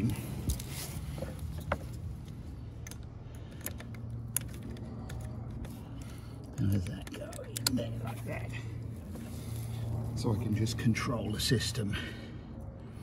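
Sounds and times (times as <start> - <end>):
cable clicks and rattles: 0.0 - 8.3
steady low hum: 0.0 - 13.0.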